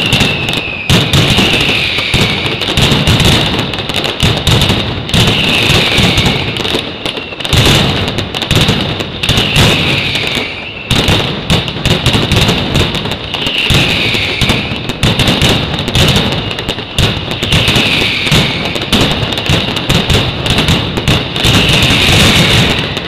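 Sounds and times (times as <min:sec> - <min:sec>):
shrill high whistle: 0:00.0 - 0:02.5, 0:05.3 - 0:06.6, 0:09.4 - 0:11.0, 0:13.4 - 0:14.8, 0:17.5 - 0:18.8
firecracker bangs and rocket bursts: 0:00.0 - 0:23.0.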